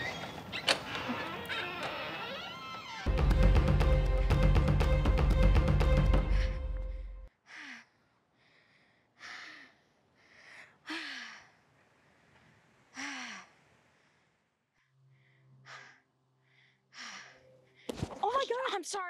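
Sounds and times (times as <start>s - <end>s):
woman breathing heavily: 6.1s - 18.0s.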